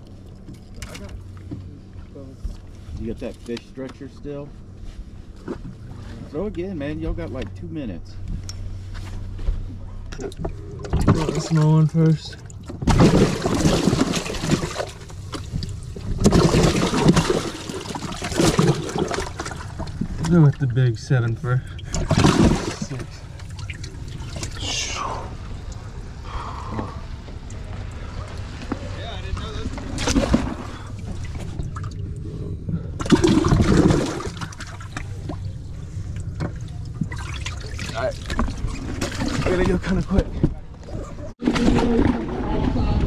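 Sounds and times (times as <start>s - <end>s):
water splashing and sloshing: 0.0s - 3.6s, 8.3s - 43.0s.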